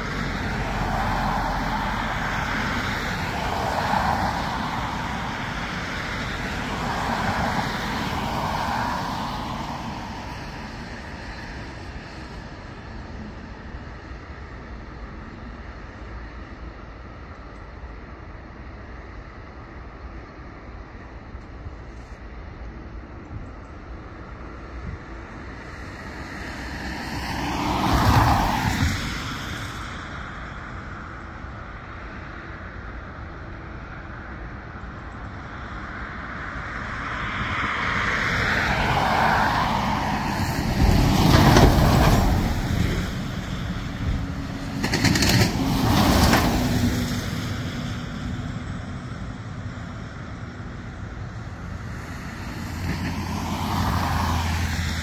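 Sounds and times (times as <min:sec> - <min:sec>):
vehicles passing close by: 0:00.0 - 0:55.0
outdoor rumble: 0:38.8 - 0:55.0.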